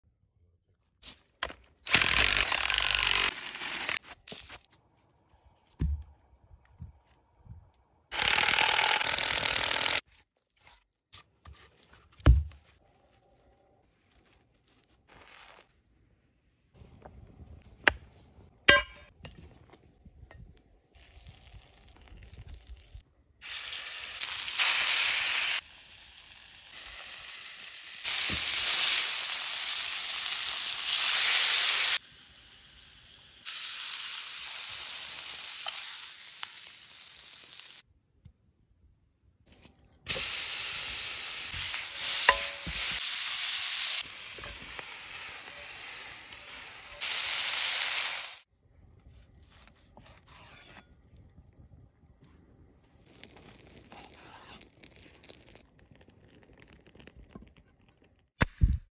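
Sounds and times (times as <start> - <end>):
steaks sizzling in skillet: 23.4 - 37.8, 40.1 - 48.5.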